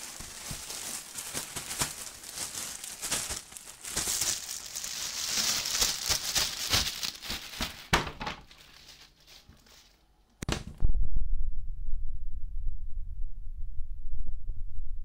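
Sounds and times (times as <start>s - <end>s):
plastic bag crinkling: 0.0s - 10.1s
low throbbing rumble: 10.8s - 15.0s.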